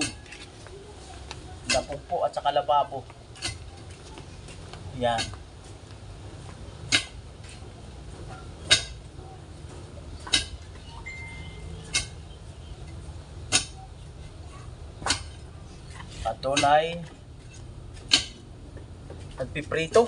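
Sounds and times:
digging tool striking hard ground: 0:06.9 - 0:07.2, 0:16.4 - 0:16.9.

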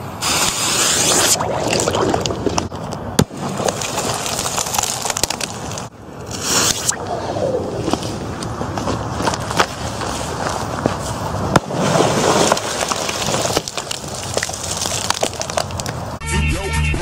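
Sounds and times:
water and ice spraying hiss: 0:00.2 - 0:01.4
music: 0:16.2 - 0:17.0.

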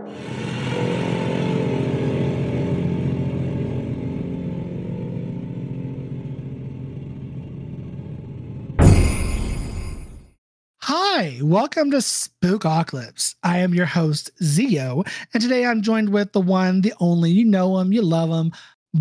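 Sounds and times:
small engine running: 0:00.1 - 0:08.8.

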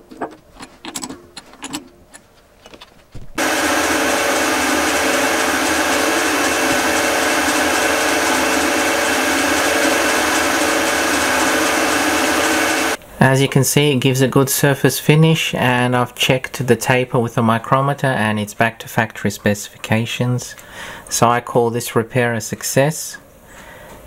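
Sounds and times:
metal lathe running: 0:03.4 - 0:13.0.

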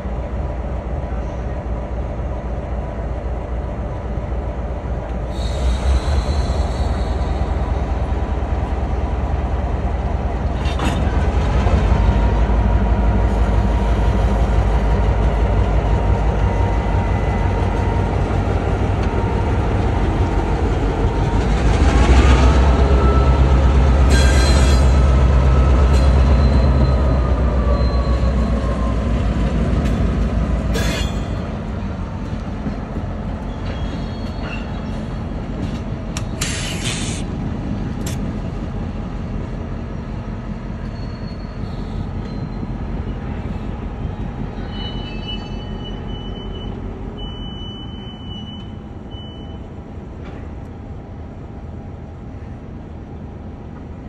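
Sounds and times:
diesel locomotive engine rumble: 0:00.0 - 0:54.0
steel wheels squealing on rail: 0:05.2 - 0:08.3, 0:21.6 - 0:37.3, 0:40.6 - 0:49.8.

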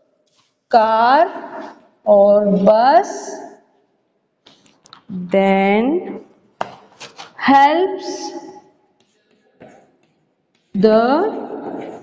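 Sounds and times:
woman's voice: 0:00.7 - 0:03.5, 0:05.1 - 0:06.2, 0:07.4 - 0:08.4, 0:10.8 - 0:11.6.

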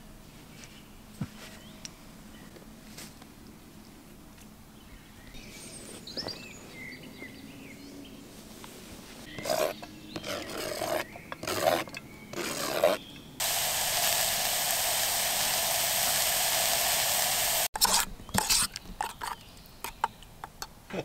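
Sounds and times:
onions sizzling in pot: 0:13.4 - 0:17.7.

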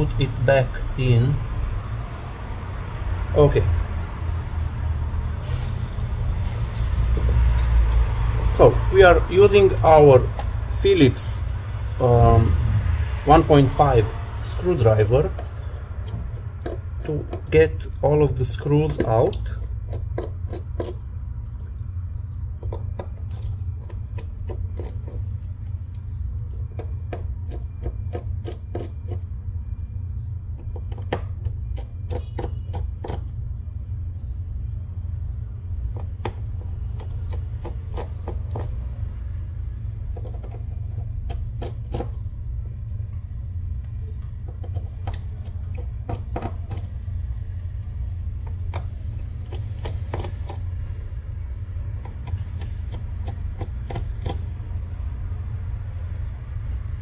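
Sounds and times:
low hum: 0:00.0 - 0:57.0
screwdriver clicks and ticks: 0:48.4 - 0:50.8, 0:51.8 - 0:55.2.

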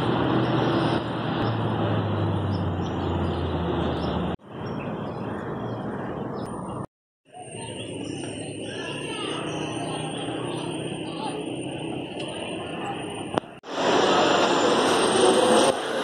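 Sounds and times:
vehicle engine humming: 0:00.0 - 0:06.8.

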